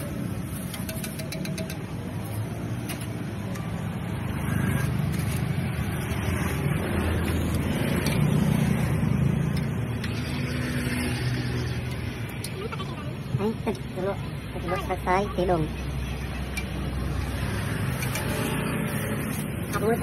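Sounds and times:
street noise: 0.0s - 20.0s.

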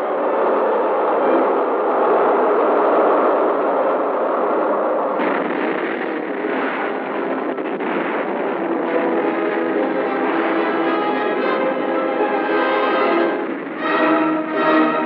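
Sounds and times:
rocket exhaust roar: 0.0s - 15.0s
faint musical tones: 8.6s - 15.0s.

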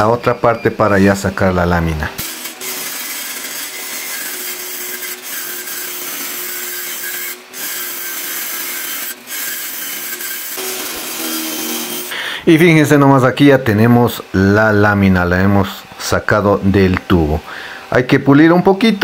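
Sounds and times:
saw motor hum: 1.0s - 17.5s
saw screeching through metal: 2.2s - 12.2s.

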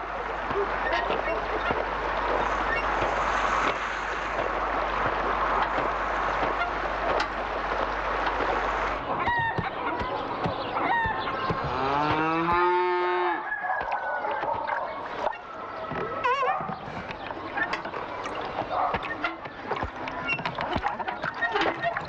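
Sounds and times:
steady rushing noise: 0.0s - 12.6s
chickens calling: 0.0s - 22.0s
rooster crowing: 11.0s - 14.4s.

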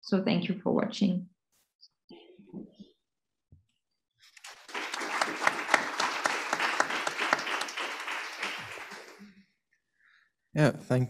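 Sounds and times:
audience applauding: 4.4s - 9.4s.

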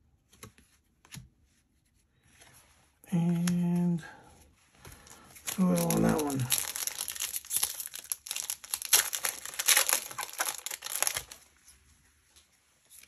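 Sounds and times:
foil wrapper crinkling: 5.0s - 11.5s
foil wrapper tearing: 5.4s - 11.5s.

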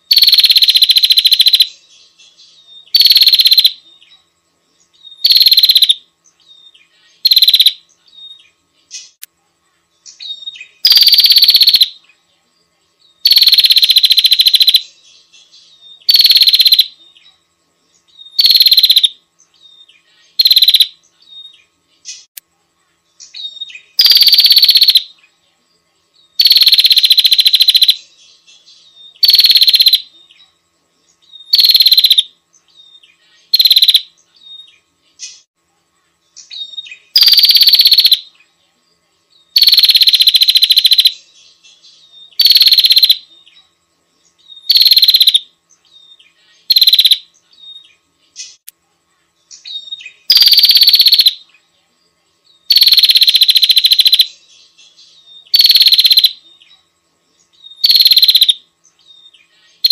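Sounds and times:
loud rapid trilled bird call: 0.1s - 1.7s, 2.9s - 3.8s, 5.1s - 6.0s, 7.2s - 7.8s, 10.3s - 12.0s, 13.2s - 14.8s, 16.0s - 17.0s, 18.3s - 19.2s, 20.4s - 21.0s, 23.4s - 25.1s, 26.4s - 28.0s, 29.1s - 30.1s, 31.4s - 32.3s, 33.5s - 34.1s, 36.6s - 38.3s, 39.6s - 41.2s, 42.3s - 43.3s, 44.5s - 45.5s, 46.7s - 47.3s, 49.8s - 51.4s, 52.7s - 54.3s, 55.5s - 56.4s, 57.7s - 58.6s.

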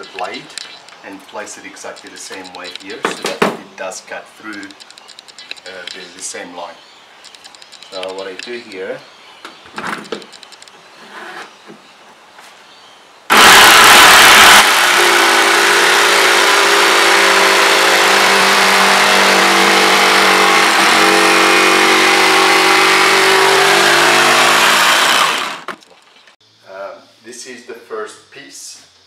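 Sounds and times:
jigsaw cutting metal panel: 13.3s - 25.8s.

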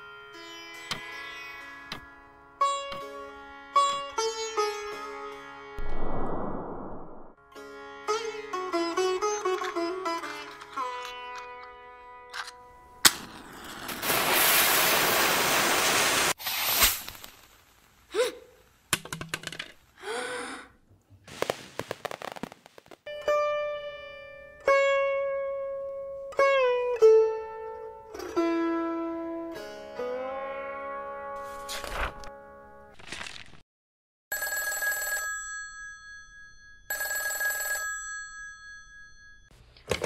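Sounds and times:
plucked string instrument: 0.0s - 5.8s, 7.4s - 12.8s, 23.1s - 32.6s
rocket hissing loudly: 13.9s - 17.5s.

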